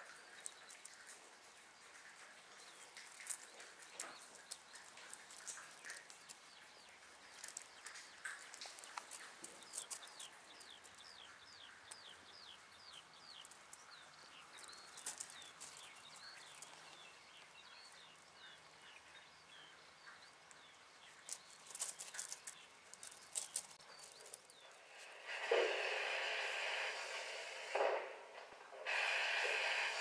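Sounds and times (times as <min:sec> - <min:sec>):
sharp clicks and crackles: 0:00.0 - 0:11.2, 0:12.9 - 0:17.1, 0:20.5 - 0:30.0
small bird chirping: 0:02.6 - 0:25.3
loud steady noise: 0:24.8 - 0:30.0.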